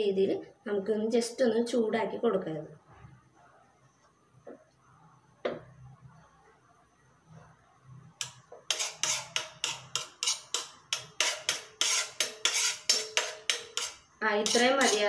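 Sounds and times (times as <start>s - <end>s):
spoon scraping a metal pan: 8.2s - 15.0s.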